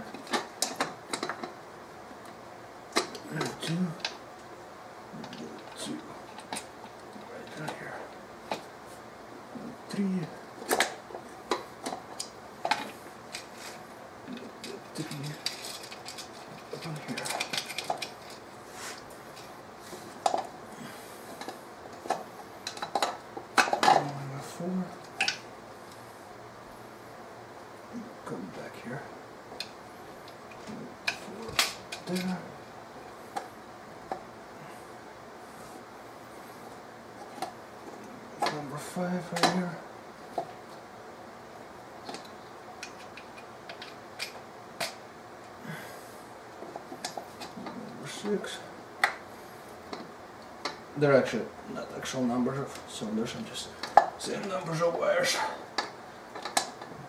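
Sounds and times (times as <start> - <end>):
soft rustle: 18.1 - 20.2.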